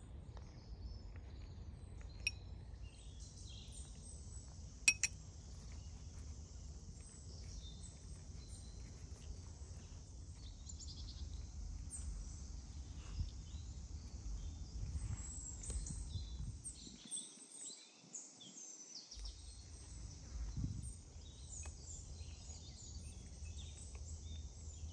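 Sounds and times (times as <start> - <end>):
low outdoor rumble: 0.0 - 16.8
small birds chirping: 0.0 - 24.9.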